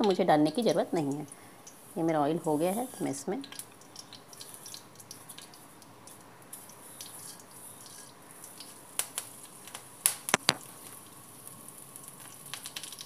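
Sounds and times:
seeds crackling in hot oil: 0:00.0 - 0:13.0
sharp clicks: 0:10.3 - 0:10.6.

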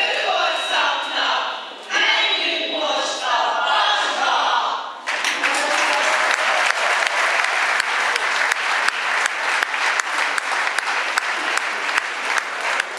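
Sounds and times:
group of voices singing: 0:00.0 - 0:05.0
audience applause: 0:05.0 - 0:12.9.

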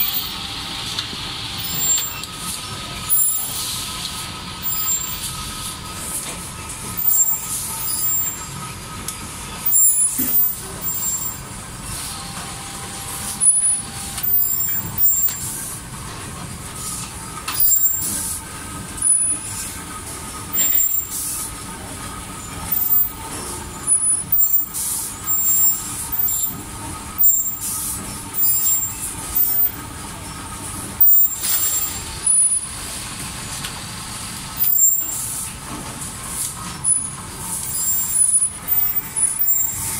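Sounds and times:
machine humming with thin whine: 0:00.0 - 0:39.9
compressed air hissing bursts: 0:20.5 - 0:21.6, 0:24.0 - 0:26.5.

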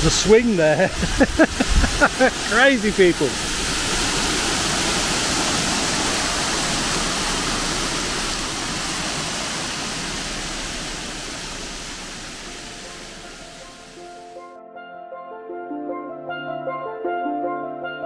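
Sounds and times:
water rushing over weir: 0:00.0 - 0:14.4.

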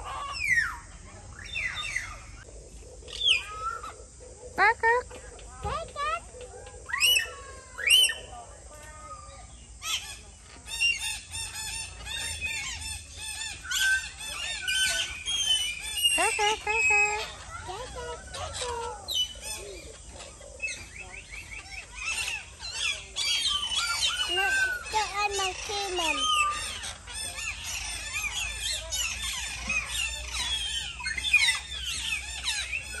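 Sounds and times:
birds chirping and squawking: 0:00.0 - 0:33.0.

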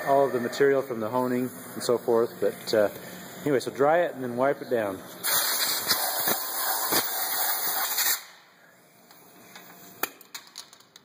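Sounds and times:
air blow gun hissing: 0:05.2 - 0:08.3.

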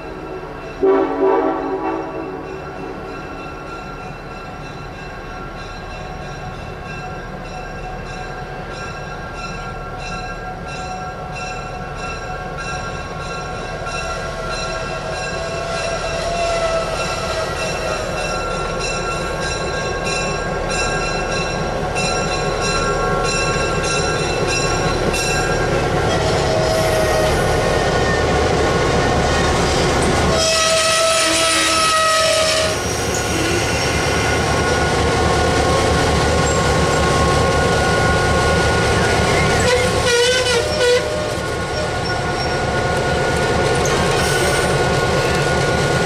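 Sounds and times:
diesel locomotive approaching: 0:00.0 - 0:46.0
rhythmic bell ringing: 0:02.2 - 0:16.2, 0:17.6 - 0:25.8.

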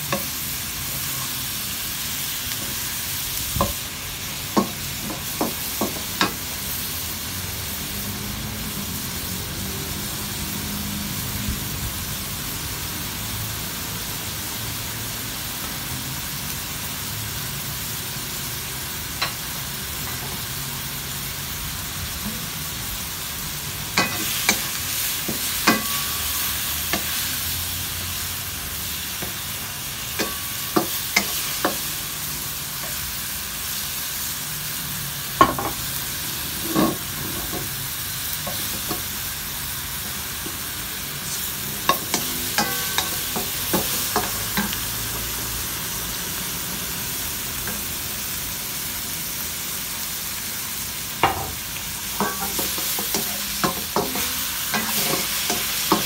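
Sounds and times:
shrimp sizzling in oil: 0:00.0 - 0:56.0.

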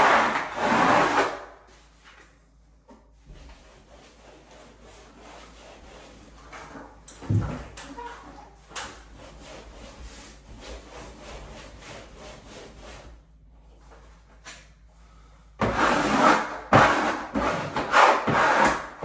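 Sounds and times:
hand tool rubbing wallpaper: 0:00.0 - 0:02.0, 0:03.2 - 0:13.3, 0:15.6 - 0:19.0.

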